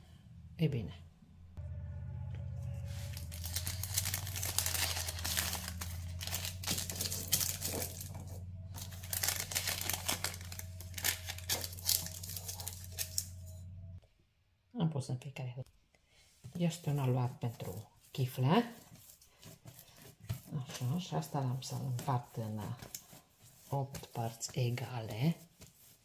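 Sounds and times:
steady low hum: 0.0s - 14.0s
baking paper crinkling: 2.8s - 13.5s, 16.6s - 26.0s.

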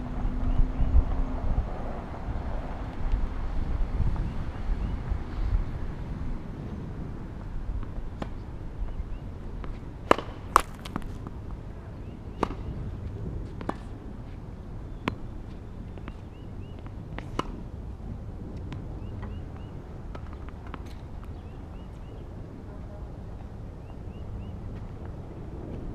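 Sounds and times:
low wind rumble on microphone: 0.0s - 25.9s
tennis ball struck and bouncing: 9.6s - 11.4s, 12.4s - 12.7s, 16.8s - 17.6s.

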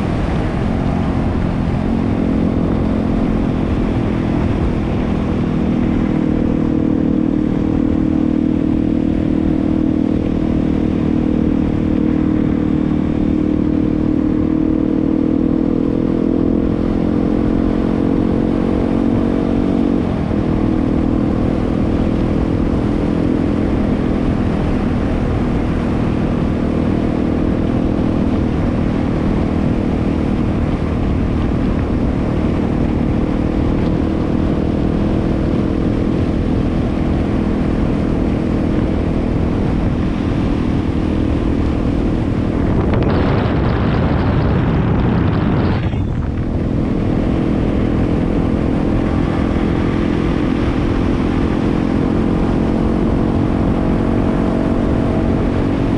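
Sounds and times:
motorcycle engine running: 0.0s - 55.9s
low rumble: 37.3s - 49.9s.

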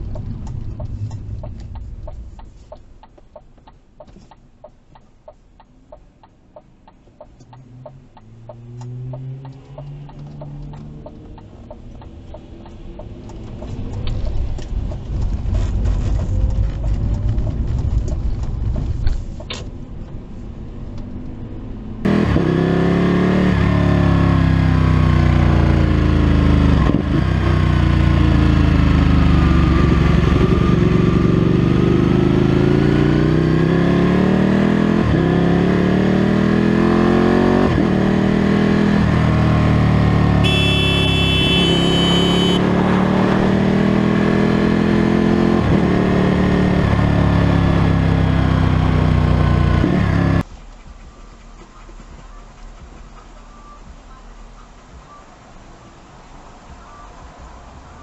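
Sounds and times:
motorcycle engine accelerating: 21.9s - 50.4s
high-pitched tone: 40.4s - 42.6s.

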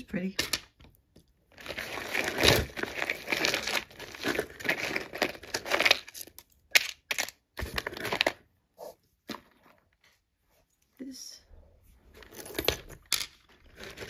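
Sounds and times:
bag of jewelry rustling: 1.5s - 6.2s, 12.0s - 14.0s.

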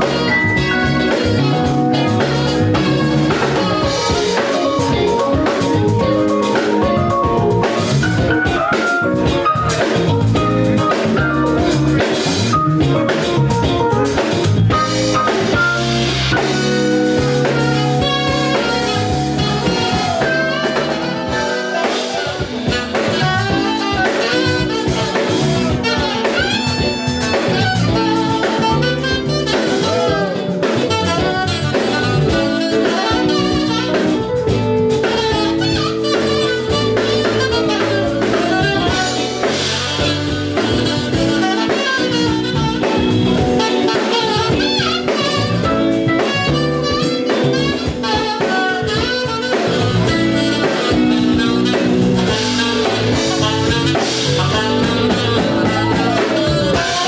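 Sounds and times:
jazz blues band playing: 0.0s - 57.0s
saxophone playing lead: 0.0s - 57.0s.

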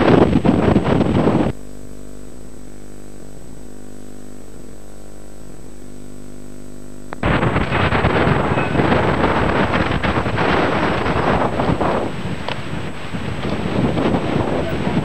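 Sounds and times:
wind buffeting microphone: 0.0s - 1.6s, 7.2s - 15.0s
electrical hum: 0.0s - 15.0s.

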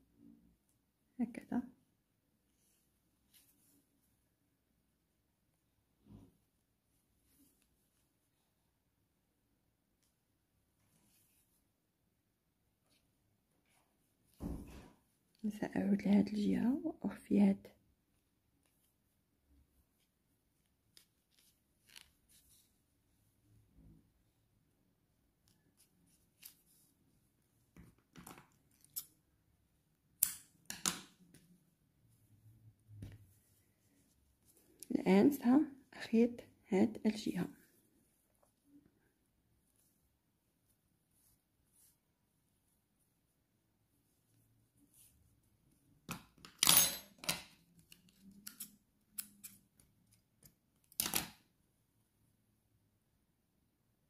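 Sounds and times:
faint rustling of yarn: 1.1s - 28.9s, 31.2s - 46.0s.

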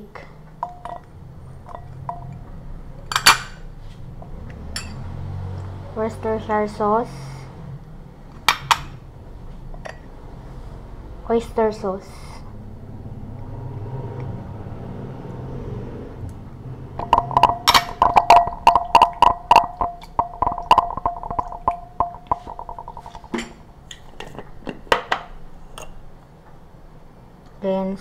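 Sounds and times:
utensil knocking against glass bowl: 17.0s - 23.5s.

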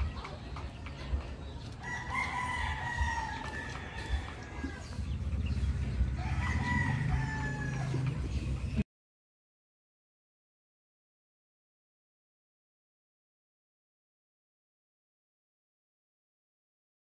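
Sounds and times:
roosters crowing: 1.7s - 8.7s.

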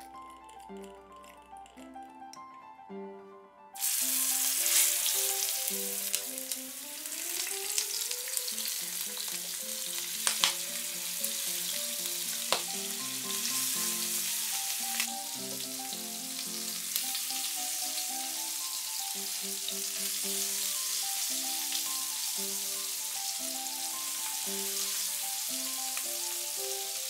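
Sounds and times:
chicken sizzling in oil: 3.8s - 27.0s.

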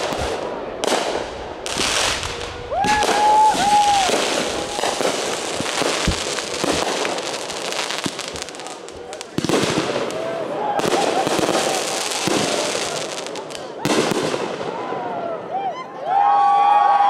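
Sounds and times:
fireworks crackling and popping: 0.0s - 14.7s
firework whistle: 1.8s - 14.1s.

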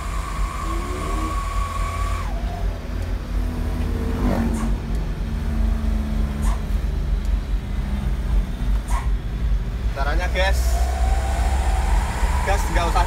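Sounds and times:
diesel truck engine drone: 0.0s - 13.0s
held high tone: 10.5s - 13.0s.

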